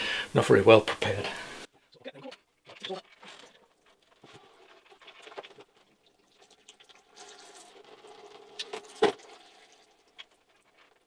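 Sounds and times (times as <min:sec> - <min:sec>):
oil trickling from bicycle frame: 0:03.4 - 0:11.0.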